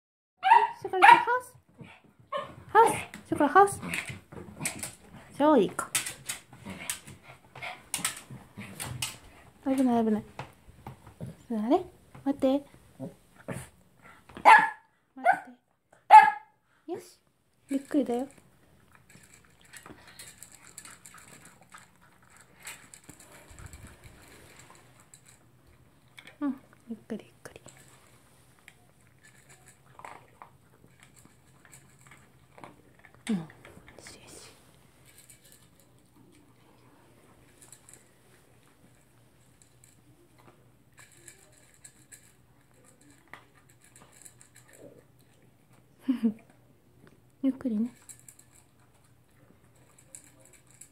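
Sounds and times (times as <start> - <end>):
dog eating from bowl: 0.8 - 11.5, 17.6 - 50.9
dog crunching food: 17.8 - 26.4, 27.6 - 34.0.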